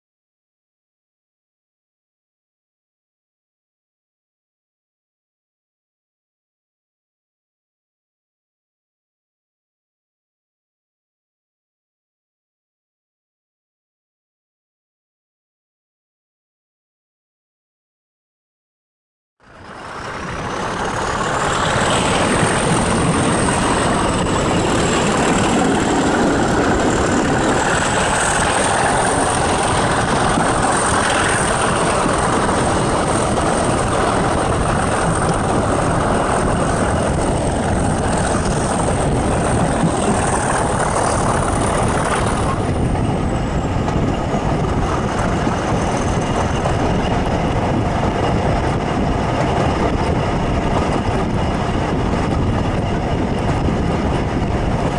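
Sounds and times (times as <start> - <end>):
locomotive engine drone: 19.4 - 54.9
wheels rumbling on rails: 19.4 - 54.9.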